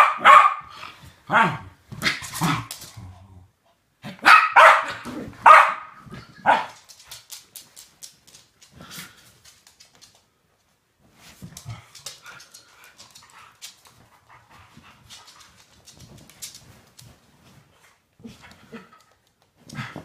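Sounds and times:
dog barking: 0.0s - 0.7s, 1.3s - 1.6s, 4.1s - 6.8s.

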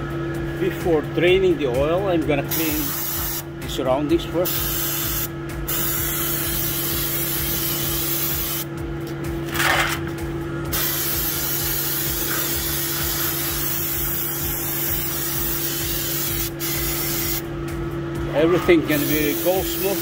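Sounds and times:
steady low hum: 0.0s - 20.0s
spray hissing: 10.7s - 17.4s.

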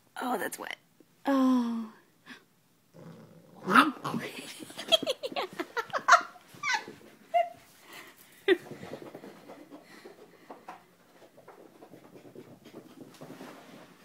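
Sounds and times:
puppy yipping and growling: 6.1s - 7.6s.

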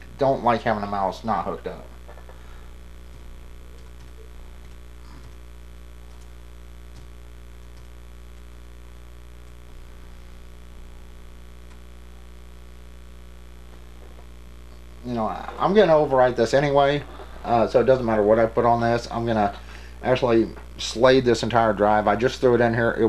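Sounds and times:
low electrical mains hum: 0.0s - 23.0s
laptop keys typing: 3.1s - 5.4s, 6.9s - 7.9s.

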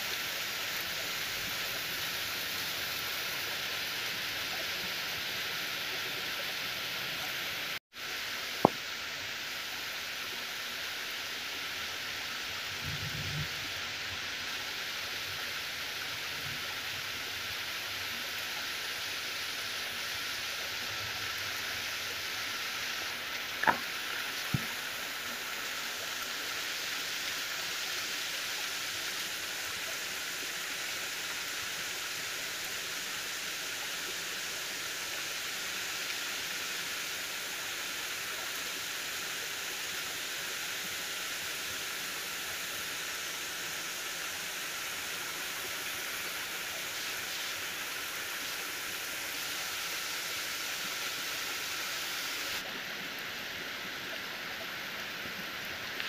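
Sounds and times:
steady rain on trees: 0.0s - 56.0s.

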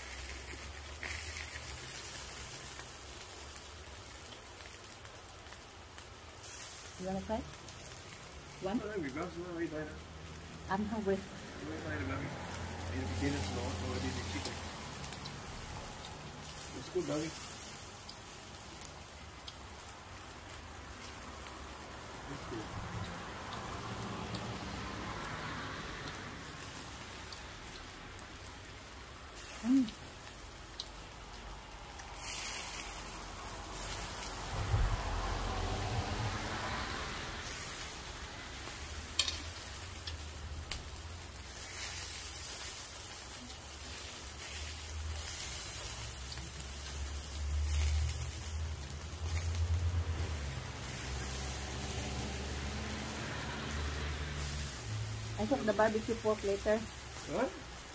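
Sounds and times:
rain hissing: 0.0s - 57.9s
skewers sizzling on grill: 0.0s - 57.9s
low rumbles: 28.0s - 41.6s.

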